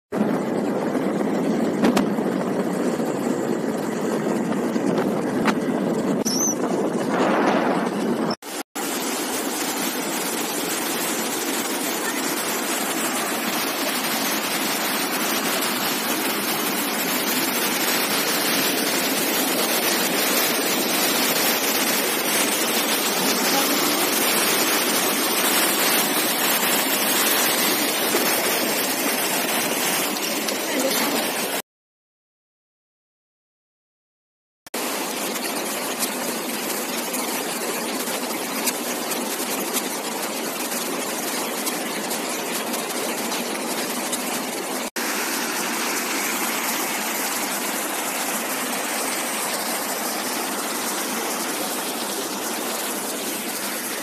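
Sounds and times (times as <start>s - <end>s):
wind rushing over microphone: 0.2s - 8.4s
water rushing over rocks: 6.4s - 31.6s, 34.8s - 54.0s.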